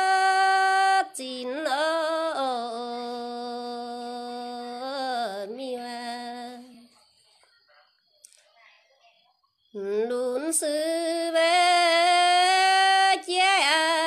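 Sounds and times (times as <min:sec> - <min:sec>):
woman singing folk song: 0:00.0 - 0:06.9, 0:09.8 - 0:14.0.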